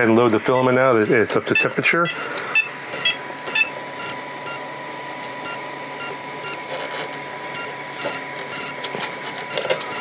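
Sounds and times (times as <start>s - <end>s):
printer short beeps: 0.5s - 4.6s.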